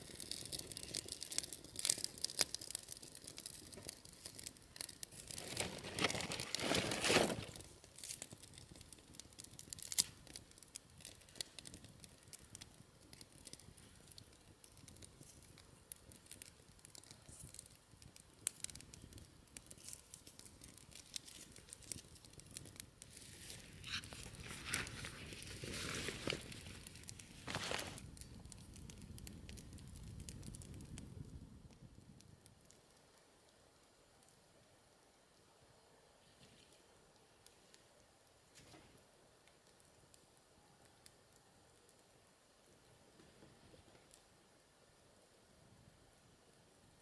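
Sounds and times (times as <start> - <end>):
hands rustling and tearing: 5.1 - 8.2, 23.1 - 28.0.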